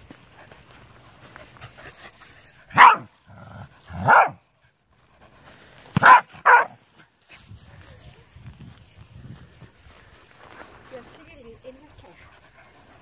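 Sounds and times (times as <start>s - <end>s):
dog barking: 2.7s - 3.1s, 3.9s - 4.4s, 6.0s - 6.8s.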